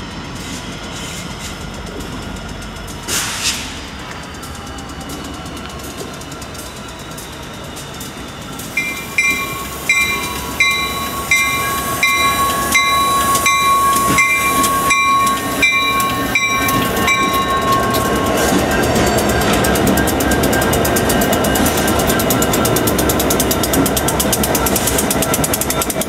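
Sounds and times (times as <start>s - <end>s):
diesel locomotives passing: 0.0s - 26.0s
locomotive bell ringing: 6.2s - 26.0s.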